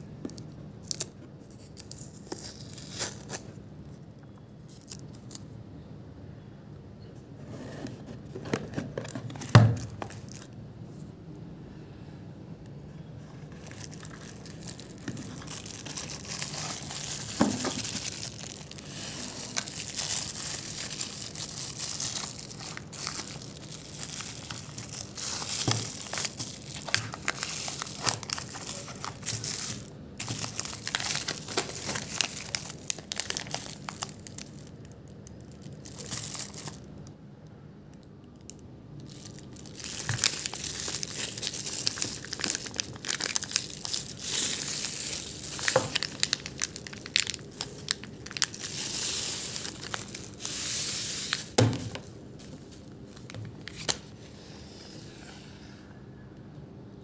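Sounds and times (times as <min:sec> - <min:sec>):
tissue paper and plastic crinkling: 0:00.2 - 0:03.6, 0:08.2 - 0:10.6, 0:13.2 - 0:36.9, 0:39.1 - 0:54.4.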